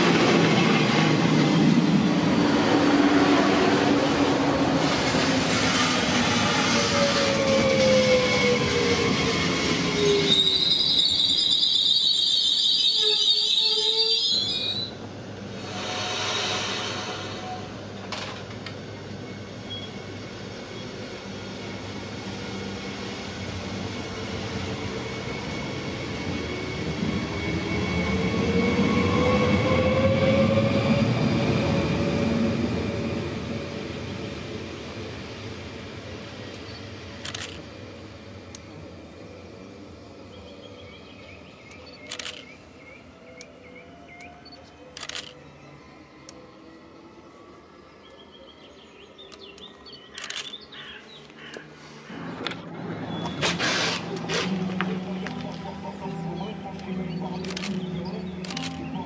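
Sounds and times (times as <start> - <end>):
train motor tone and rumble: 0.0 - 59.0
train passing: 0.0 - 59.0
high wavering wheel squeal: 6.8 - 15.0.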